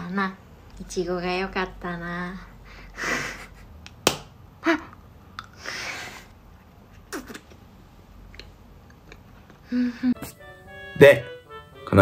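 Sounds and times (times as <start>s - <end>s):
person breathing: 5.6s - 6.3s.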